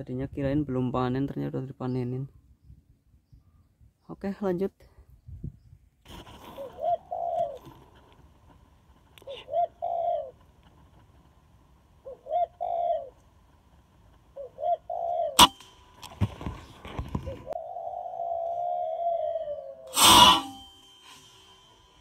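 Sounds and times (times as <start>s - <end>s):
dove cooing: 6.4s - 8.2s, 9.2s - 11.1s, 12.0s - 13.3s, 14.2s - 15.6s, 16.2s - 20.5s
rifle shot: 15.4s - 16.1s.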